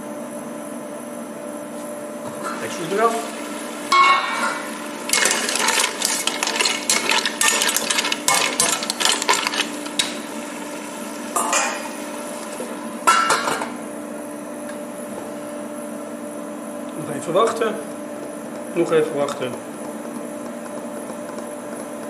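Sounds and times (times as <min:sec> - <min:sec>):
metal utensil scraping pot: 0:04.0 - 0:10.2
mussel shells clattering: 0:05.1 - 0:10.1.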